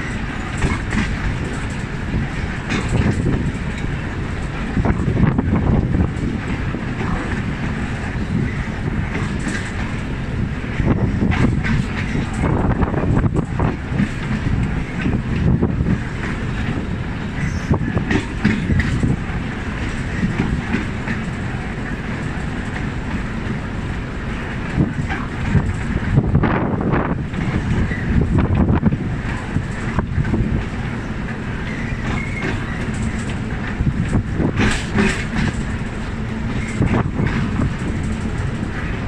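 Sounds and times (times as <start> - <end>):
train rumble: 0.0 - 39.0
wheels clacking over rail joints: 0.0 - 39.0.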